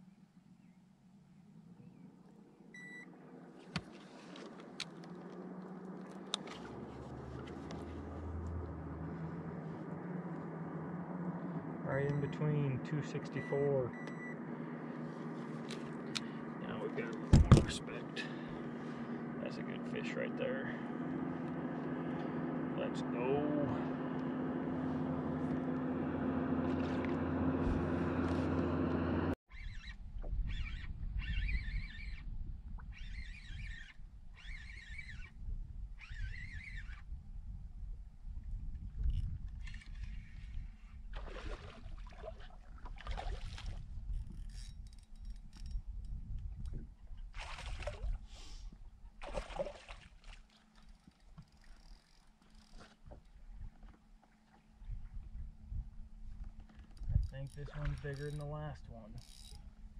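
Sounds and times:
low steady hum: 0:00.0 - 0:29.4
sharp clicks and knocks: 0:17.1 - 0:17.8
birds chirping in warbling trills: 0:29.5 - 0:35.4, 0:36.0 - 0:37.0
wind noise: 0:30.0 - 0:42.0, 0:42.6 - 0:49.1, 0:54.8 - 0:57.4.

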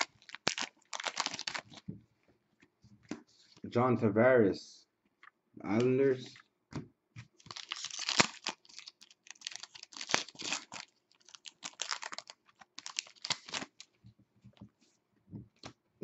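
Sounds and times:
foil wrapper crinkling and tearing: 0:00.0 - 0:01.8, 0:07.4 - 0:13.9.

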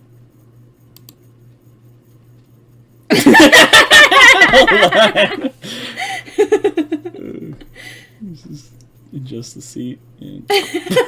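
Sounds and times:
loud laughter: 0:03.1 - 0:05.6.

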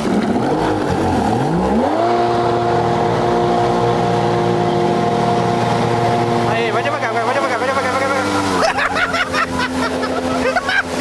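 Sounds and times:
jet ski engine revving: 0:00.0 - 0:11.0.

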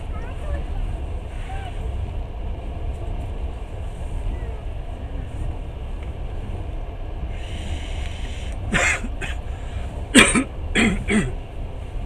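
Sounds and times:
train rumble: 0:00.0 - 0:12.0
person coughing: 0:08.7 - 0:09.4, 0:10.1 - 0:11.4.

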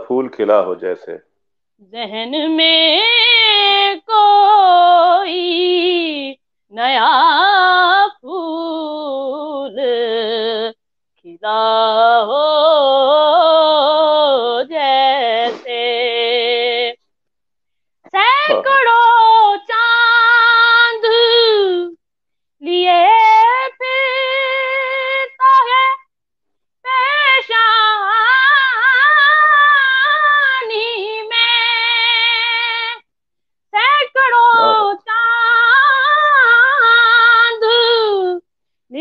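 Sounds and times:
boy singing unaccompanied: 0:11.3 - 0:16.9, 0:18.1 - 0:22.0, 0:34.0 - 0:38.4
breaths: 0:17.6 - 0:18.0, 0:38.6 - 0:38.9.

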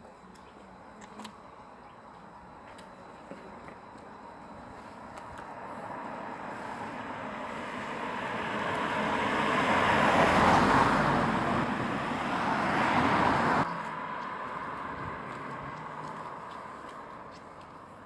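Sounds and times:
cars driving past: 0:05.4 - 0:18.0.

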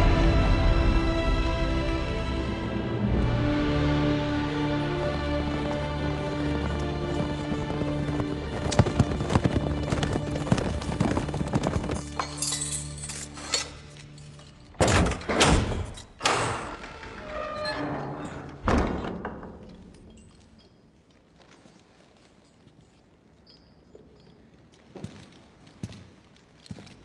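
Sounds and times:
film music with sustained tones: 0:00.0 - 0:17.6.

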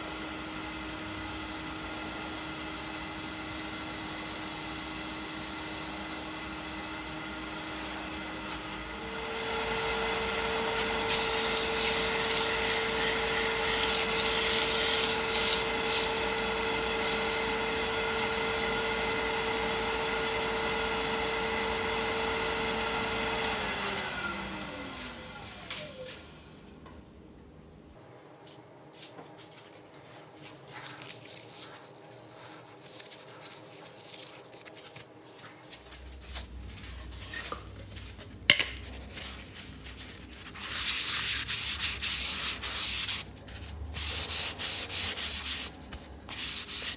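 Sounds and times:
wood lathe motor whine: 0:00.1 - 0:26.5.

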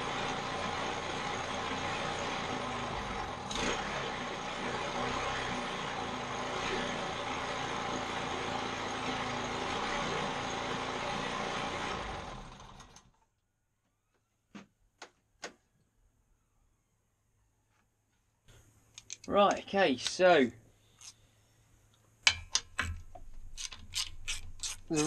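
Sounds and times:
lawnmower engine running: 0:00.0 - 0:13.2.

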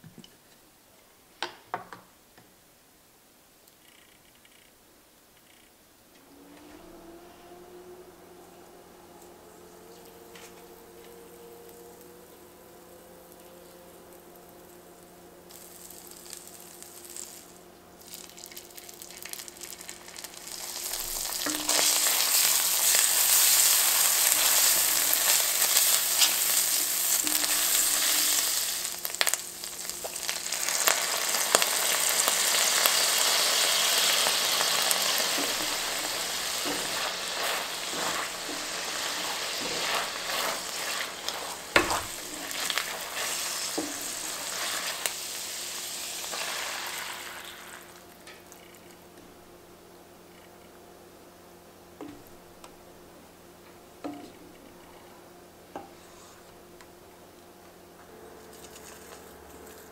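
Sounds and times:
chili paste sizzling in butter: 0:09.9 - 0:48.6
stirring in a pan: 0:34.8 - 0:47.9.

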